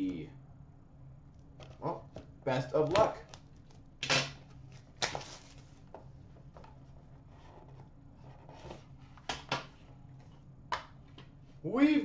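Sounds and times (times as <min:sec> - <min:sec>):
low steady hum: 0:00.0 - 0:12.0
cardboard box rustling: 0:04.6 - 0:05.8.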